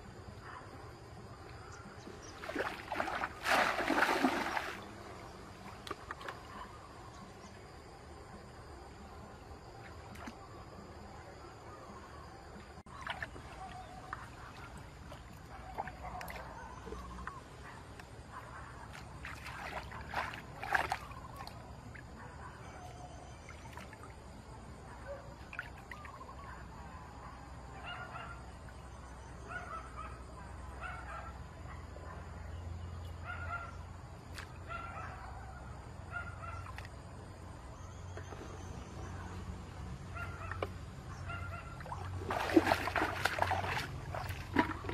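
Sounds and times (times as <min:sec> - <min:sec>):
water splashing and sloshing: 0:01.2 - 0:11.2, 0:11.8 - 0:26.5, 0:36.2 - 0:44.9.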